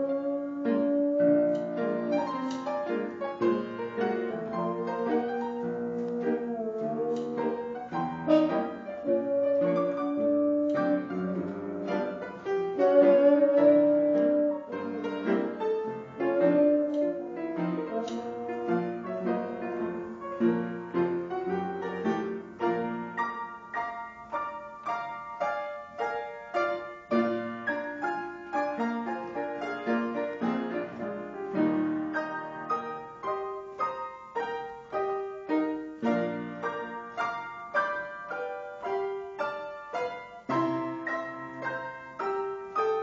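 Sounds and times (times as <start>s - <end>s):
wind instrument long held notes: 0.0s - 2.8s, 4.0s - 20.2s
piano playing slow jazz: 0.0s - 43.0s.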